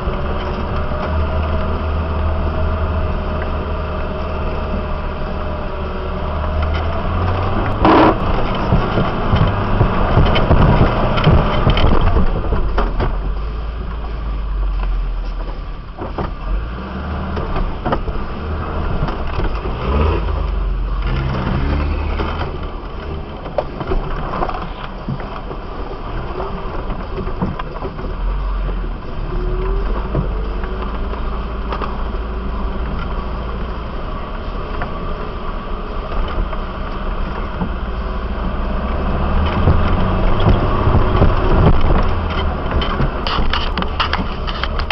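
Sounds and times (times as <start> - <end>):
vehicle engine rumbling: 0.0 - 44.9
knocks and rattles: 6.5 - 14.2, 38.5 - 44.9.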